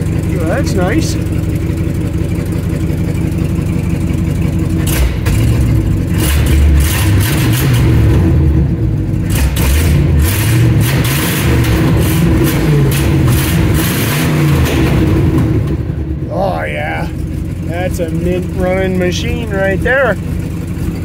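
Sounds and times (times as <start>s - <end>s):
truck engine idling and revving: 0.0s - 21.0s.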